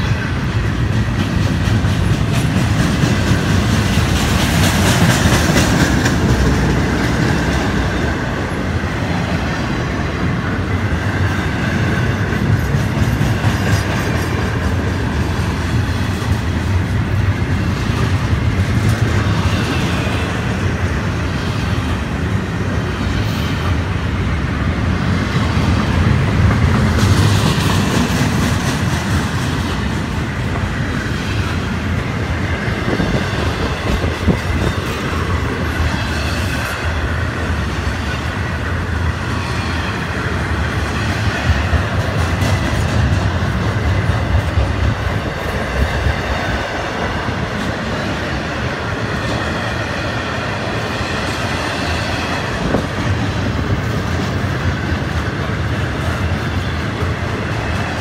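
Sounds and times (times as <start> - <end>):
wheels clacking over rail joints: 0.0 - 9.5
steel wheels rumbling on rail: 0.0 - 58.0.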